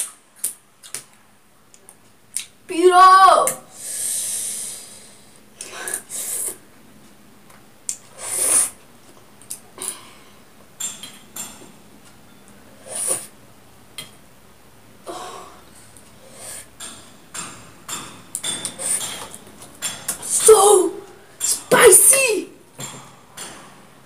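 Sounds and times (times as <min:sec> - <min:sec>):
short sharp breaths: 0:03.7 - 0:06.6
person slurping noodles: 0:05.8 - 0:06.6, 0:08.1 - 0:08.8, 0:12.8 - 0:13.3.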